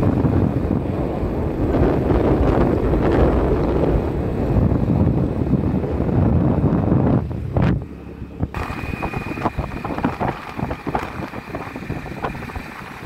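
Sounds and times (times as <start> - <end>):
wind buffeting microphone: 0.0 - 13.0
motorcycle engine running: 6.3 - 13.0.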